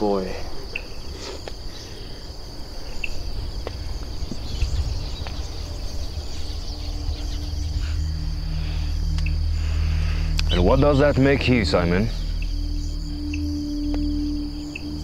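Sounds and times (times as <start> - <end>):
crickets chirring: 0.0 - 15.0
low outdoor rumble: 1.6 - 15.0
low steady hum: 1.6 - 15.0.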